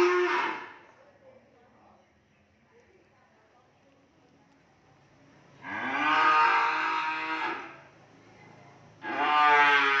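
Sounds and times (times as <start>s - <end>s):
cow mooing: 0.0s - 0.8s, 5.6s - 7.8s, 9.0s - 10.0s.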